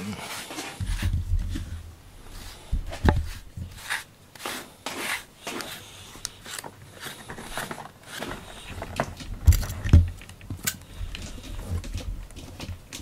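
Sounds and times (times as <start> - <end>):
brush scratching through fur: 0.0 - 8.8.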